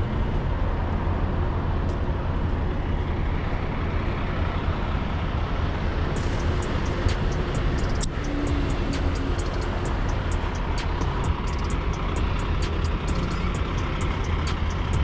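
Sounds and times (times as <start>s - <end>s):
semi-truck rumbling: 0.0s - 15.0s.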